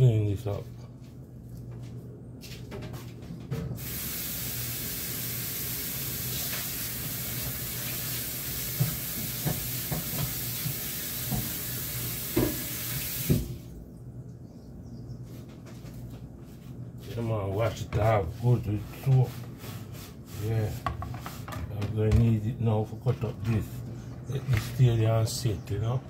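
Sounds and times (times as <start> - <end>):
tap running into sink: 6.3 - 13.6
cutting board knocking on sink: 8.8 - 10.4, 12.3 - 12.7.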